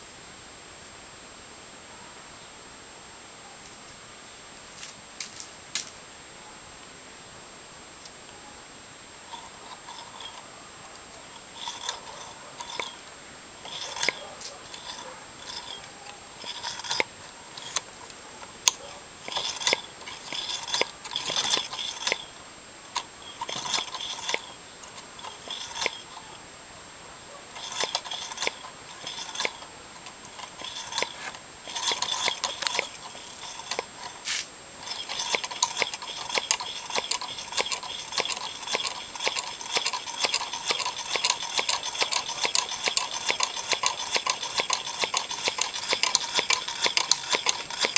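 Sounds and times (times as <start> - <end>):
crank clicking and rattling: 9.3 - 10.5, 11.1 - 26.4, 27.5 - 47.9
small engine running: 9.3 - 10.5, 11.2 - 26.4, 27.5 - 47.9.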